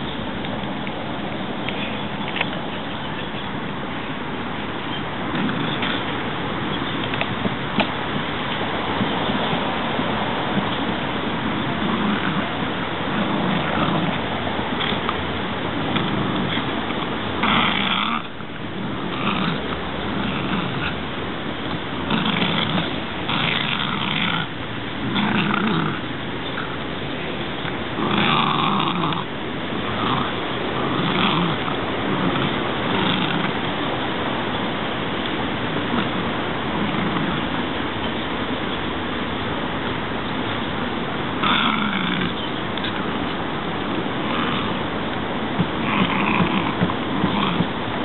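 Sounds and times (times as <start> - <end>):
steady rushing noise: 0.0 - 48.0
dog gnawing a branch: 4.7 - 9.6, 10.4 - 37.7, 41.2 - 47.8
dog growling: 5.3 - 6.1, 10.5 - 33.9, 35.7 - 37.6, 41.3 - 43.0, 43.9 - 44.9, 45.6 - 47.8.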